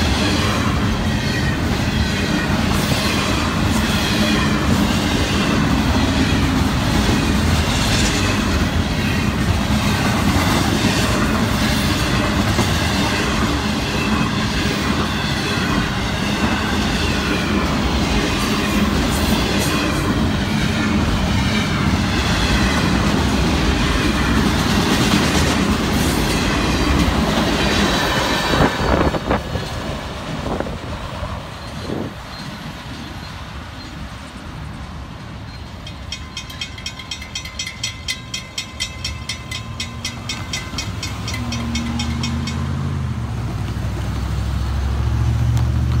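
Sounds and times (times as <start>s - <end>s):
freight train wheels rumbling: 0.0s - 46.0s
crossing bell ringing: 35.4s - 43.1s
road vehicles driving: 38.4s - 46.0s.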